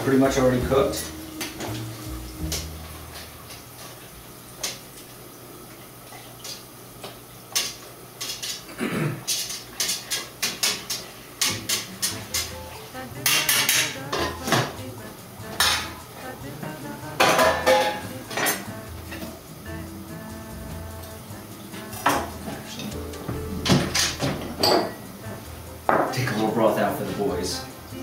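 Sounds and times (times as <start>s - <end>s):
low steady hum: 0.0s - 6.6s
metal cookware clattering: 9.3s - 14.8s, 17.2s - 19.3s, 23.6s - 25.0s.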